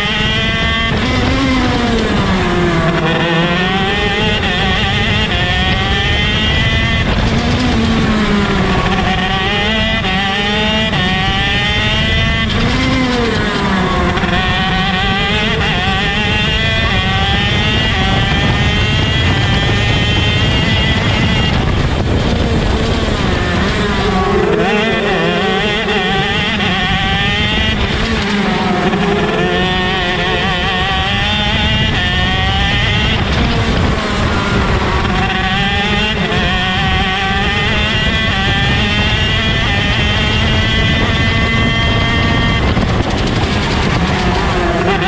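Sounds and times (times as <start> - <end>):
kart engine revving: 0.0 - 45.0
other kart engines: 0.0 - 45.0.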